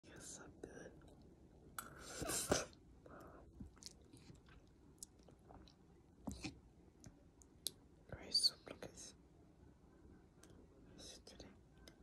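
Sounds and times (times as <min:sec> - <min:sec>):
chewing with mouth smacks: 0:03.6 - 0:06.6.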